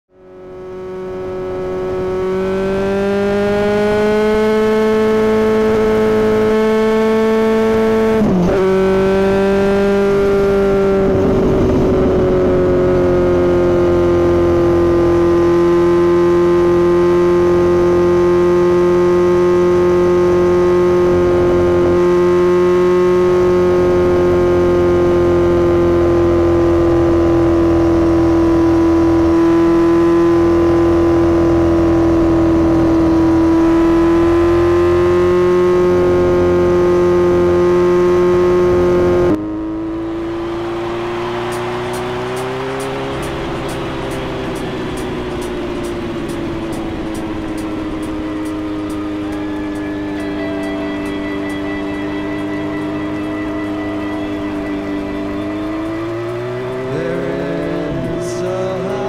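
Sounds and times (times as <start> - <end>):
motorcycle engine cruising: 0.1 - 59.0
wind rush: 10.0 - 13.2.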